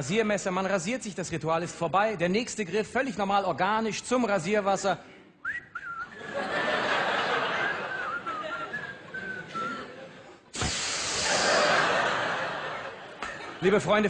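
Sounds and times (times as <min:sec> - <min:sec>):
audience laughing: 0:06.1 - 0:13.9.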